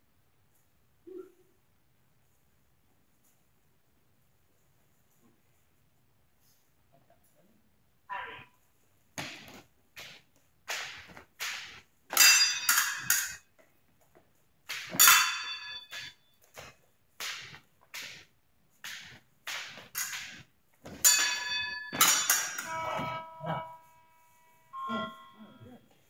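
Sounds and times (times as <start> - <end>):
fencing blades clashing and scraping: 8.6 - 25.3.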